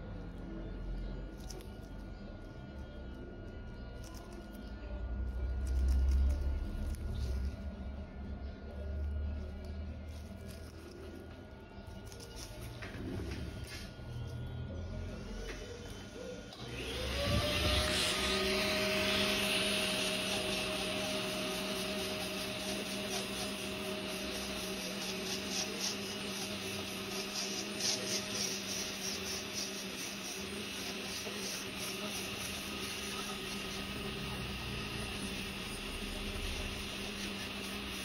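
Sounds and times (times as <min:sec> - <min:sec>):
electric nail drill spinning: 0:16.5 - 0:38.0.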